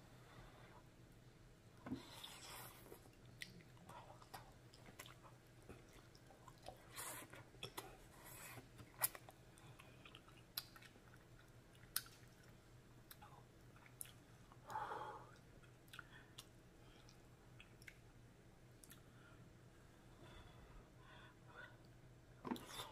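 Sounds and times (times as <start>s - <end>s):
soft wet chewing: 1.8s - 19.4s.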